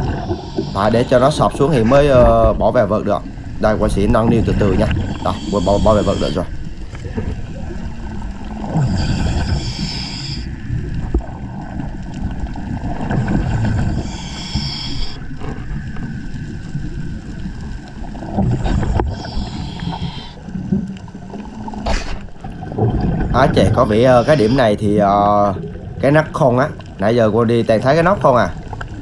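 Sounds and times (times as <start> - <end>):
diver breathing through regulator: 0.0 - 1.4, 5.0 - 6.5, 8.7 - 10.6, 13.6 - 15.6, 18.6 - 20.6, 24.0 - 24.8
low rumble of water: 0.0 - 29.0.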